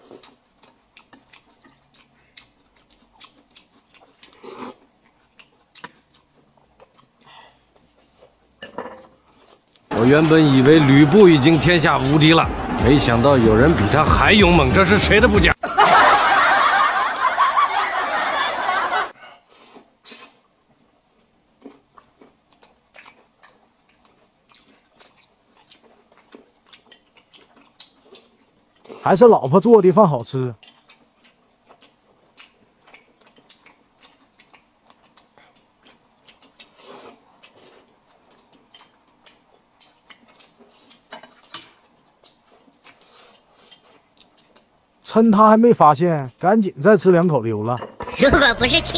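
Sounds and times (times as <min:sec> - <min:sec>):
wet chewing smacks: 0:00.0 - 0:08.6, 0:21.6 - 0:29.1, 0:30.6 - 0:44.8
slurping noodles: 0:04.2 - 0:04.8, 0:36.3 - 0:37.9, 0:42.8 - 0:44.0
loud voices: 0:09.9 - 0:15.6.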